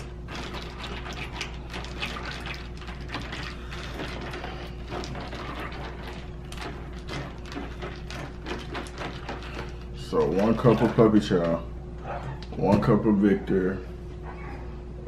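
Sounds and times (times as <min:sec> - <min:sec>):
spoon stirring wet kibble in pan: 0:00.0 - 0:11.7.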